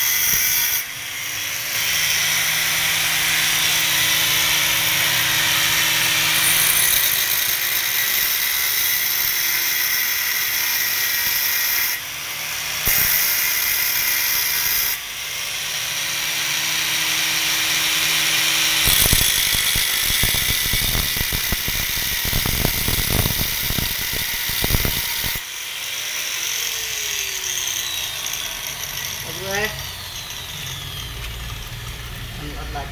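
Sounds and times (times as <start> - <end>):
angle grinder whining: 0.0 - 32.9
grinder cutting metal: 0.0 - 32.9.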